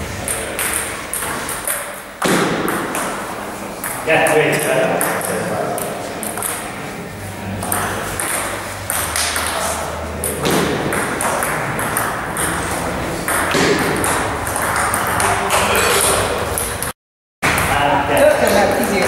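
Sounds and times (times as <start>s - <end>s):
table tennis ball clicking off bats: 5.0s - 6.7s.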